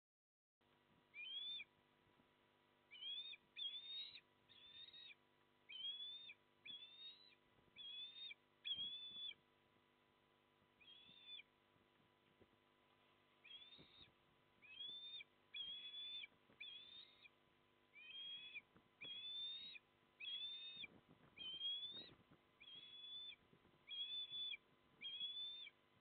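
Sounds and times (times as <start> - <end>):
osprey whistled calls: 1.1 - 1.7, 2.9 - 9.4, 10.8 - 11.5, 13.4 - 25.8.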